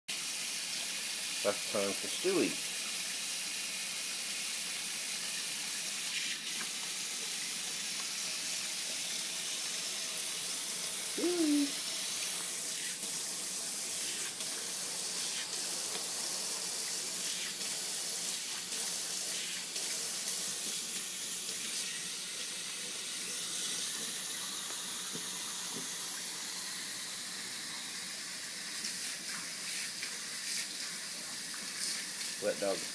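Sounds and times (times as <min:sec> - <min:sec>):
tap water running into sink: 0:00.1 - 0:32.9.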